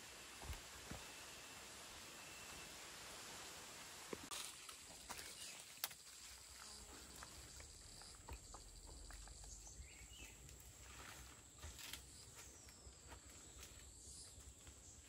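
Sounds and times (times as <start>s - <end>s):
insects buzzing: 0.0s - 15.0s
bare footsteps on earth: 0.4s - 1.2s.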